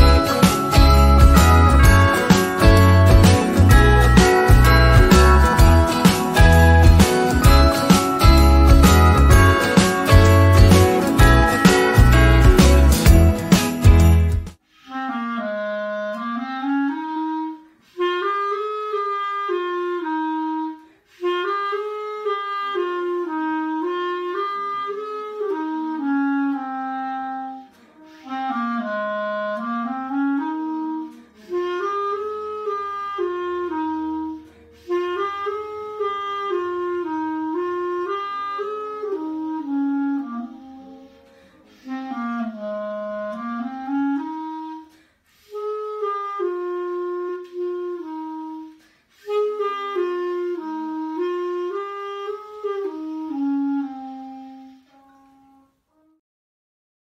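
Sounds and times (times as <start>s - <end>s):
solo clarinet melody: 0.0s - 56.2s.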